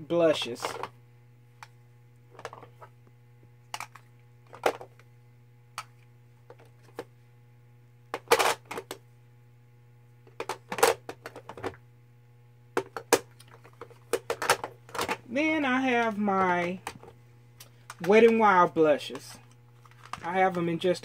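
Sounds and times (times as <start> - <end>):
plastic clattering: 2.3 - 2.9, 8.1 - 9.0, 10.3 - 11.8, 12.8 - 15.2, 19.1 - 20.6
plastic compacts clicking: 19.8 - 20.6.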